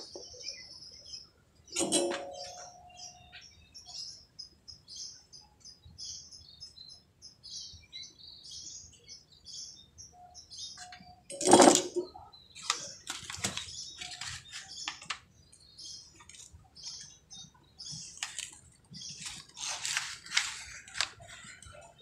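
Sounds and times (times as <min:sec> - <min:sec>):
small birds chirping: 0:00.0 - 0:22.0
circuit board rustling and clattering: 0:01.8 - 0:02.7, 0:11.3 - 0:15.2
small knocks and scrapes: 0:10.8 - 0:12.1.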